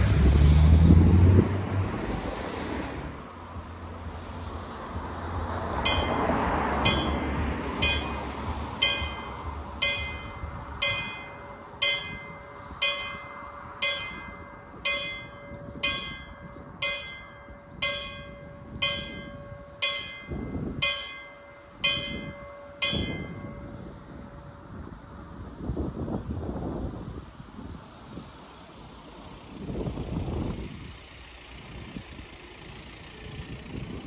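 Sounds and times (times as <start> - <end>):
low rushing noise: 0.0 - 25.6
level crossing bell ringing: 5.9 - 23.8.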